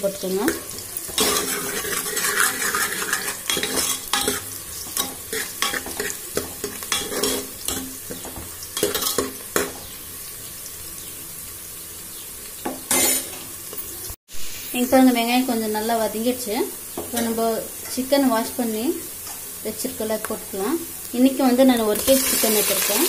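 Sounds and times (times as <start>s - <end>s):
onions sizzling in hot oil: 0.0s - 23.0s
steel spoon scraping a pot: 1.0s - 8.2s, 12.9s - 13.4s.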